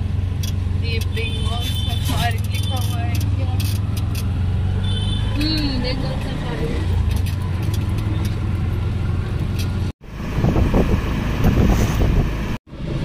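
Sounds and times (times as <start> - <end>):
auto-rickshaw engine: 0.0 - 13.0.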